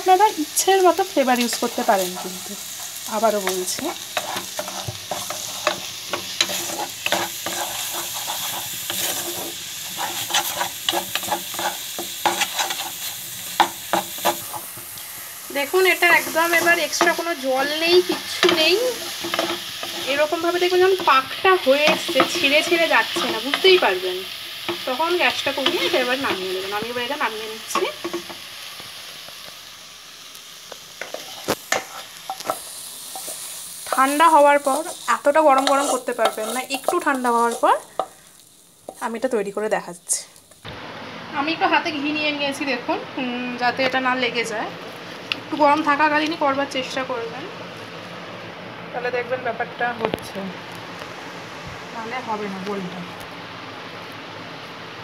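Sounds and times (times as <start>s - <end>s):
light sizzle: 0.0s - 55.0s
wooden spatula scraping a pan: 1.4s - 14.8s, 16.1s - 23.9s, 24.6s - 26.5s, 31.0s - 38.2s.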